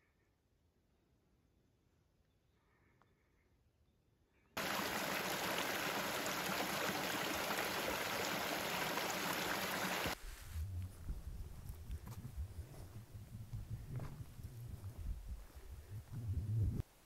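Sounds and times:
rushing stream water: 0:04.6 - 0:10.2.

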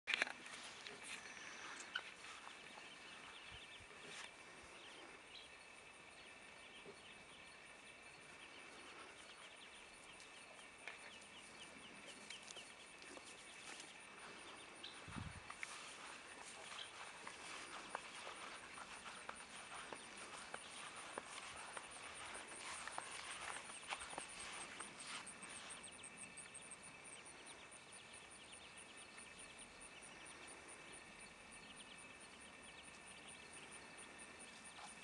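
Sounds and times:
ducklings peeping: 0:08.3 - 0:26.6.

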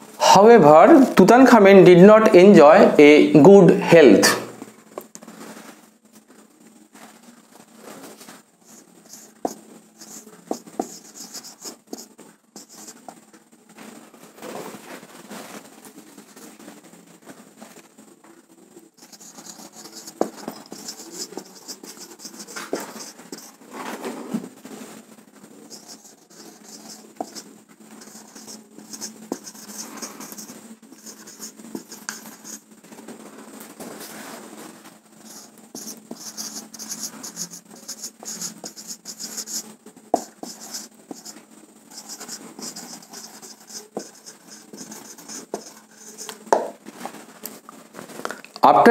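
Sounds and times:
marker scratching on whiteboard: 0:08.6 - 0:13.2, 0:19.0 - 0:23.6, 0:25.6 - 0:32.7, 0:35.2 - 0:46.8
marker tip tapping board: 0:42.0 - 0:46.7.

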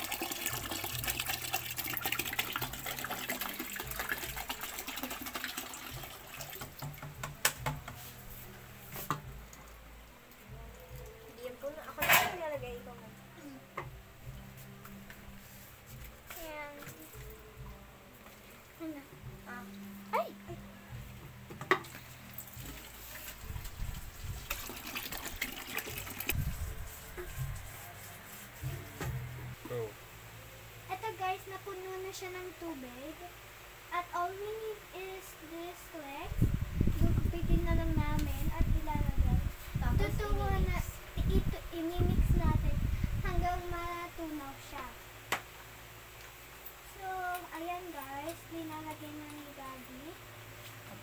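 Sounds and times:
water pouring into plastic pail: 0:00.0 - 0:07.0, 0:21.8 - 0:26.4
faucet stream into plastic bottle: 0:00.0 - 0:07.1, 0:21.7 - 0:26.4.

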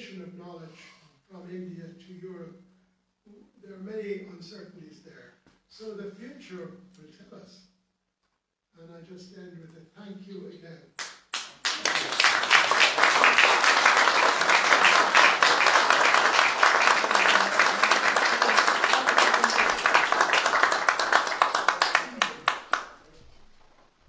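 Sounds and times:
audience applauding: 0:11.0 - 0:23.2.

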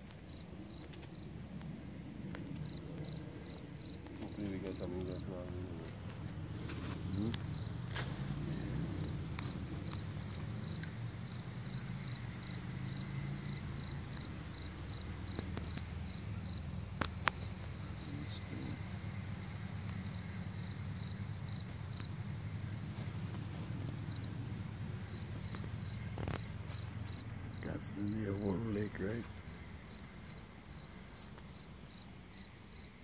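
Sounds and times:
insect chirping: 0:00.0 - 0:33.0
low steady rumble: 0:01.2 - 0:15.3
sharp click: 0:07.3 - 0:08.8.

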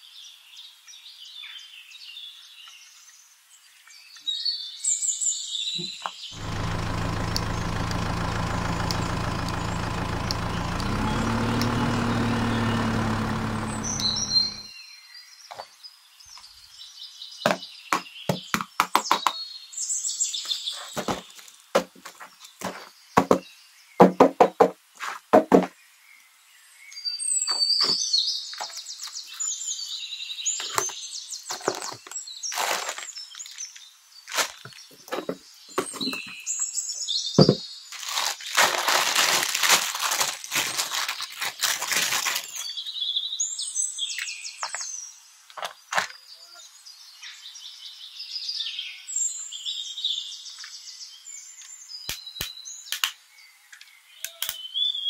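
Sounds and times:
knock: 0:24.0 - 0:24.8, 0:25.4 - 0:25.7
paper tearing and crinkling: 0:32.5 - 0:33.6, 0:37.9 - 0:42.7.

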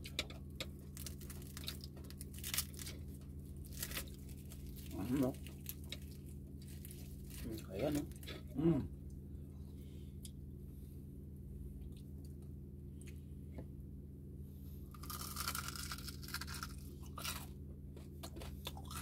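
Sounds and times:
crunchy chewing: 0:00.0 - 0:08.6, 0:14.9 - 0:19.0.

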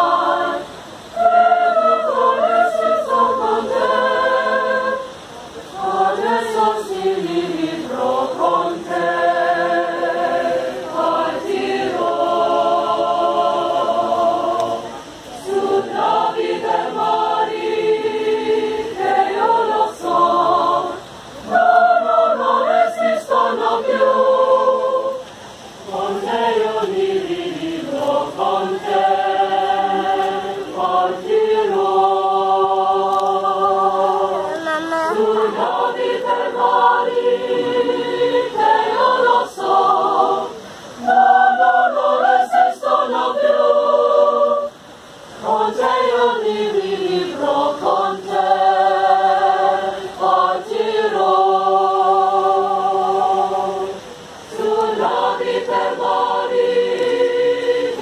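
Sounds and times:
choir singing unaccompanied: 0:00.0 - 0:58.0.

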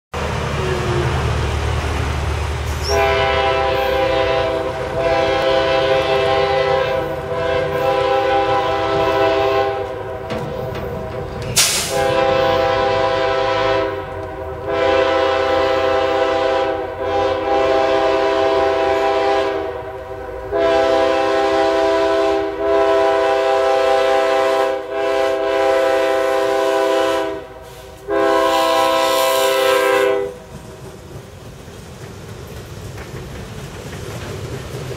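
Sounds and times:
train rumbling: 0:00.1 - 0:34.9
locomotive air horn blasts: 0:02.7 - 0:10.8, 0:11.6 - 0:30.4.

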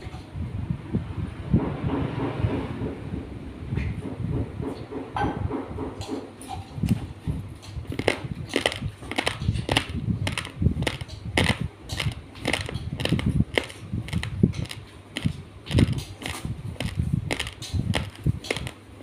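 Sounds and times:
rice grains crunched between teeth: 0:07.9 - 0:18.8.

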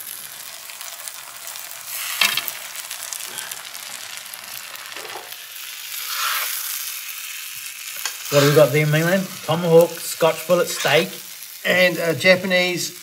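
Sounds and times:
food sizzling in a frying pan: 0:00.0 - 0:13.0
metal spoon scraping a pan: 0:04.9 - 0:06.8, 0:08.0 - 0:08.8, 0:10.6 - 0:11.2.

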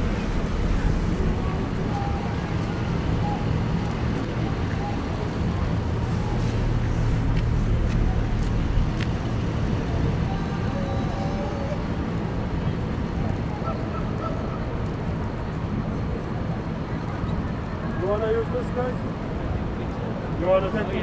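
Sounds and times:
low city rumble: 0:00.0 - 0:21.0.

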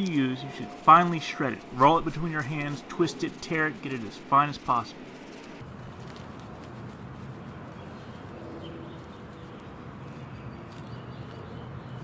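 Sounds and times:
steady low hum: 0:00.0 - 0:07.3
bark tinder rustling: 0:00.0 - 0:10.9.

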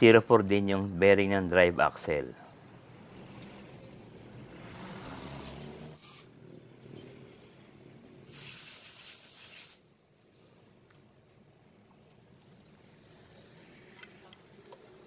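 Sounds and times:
spray hissing: 0:06.0 - 0:06.3, 0:08.2 - 0:09.8.

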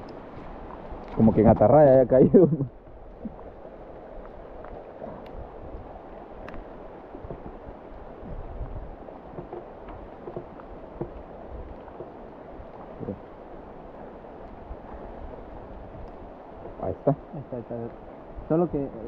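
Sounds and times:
river rushing: 0:00.0 - 0:19.0
faint clicks and knocks: 0:09.3 - 0:12.9.

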